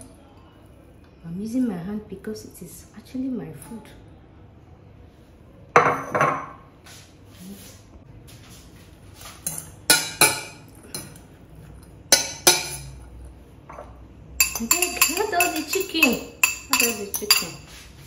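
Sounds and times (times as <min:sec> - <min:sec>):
fork clinking in metal bowl: 0:12.1 - 0:13.1, 0:13.7 - 0:17.8.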